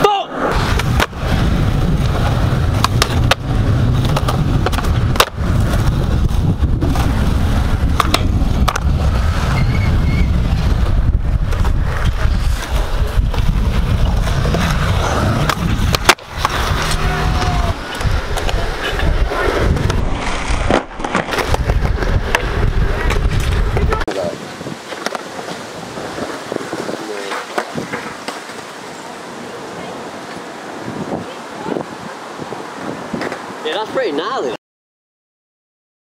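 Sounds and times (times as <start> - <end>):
skateboard wheels rolling on pavement: 0.0 - 34.6
skateboard clacks: 0.5 - 1.2, 1.9 - 9.0, 10.8 - 20.0, 20.6 - 24.2, 24.8 - 28.8, 33.1 - 33.5.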